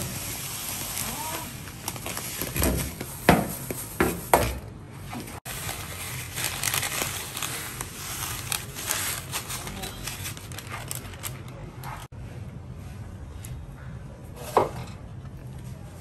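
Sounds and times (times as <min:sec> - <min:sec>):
crumbs rustling: 0:00.0 - 0:04.0, 0:05.3 - 0:12.1.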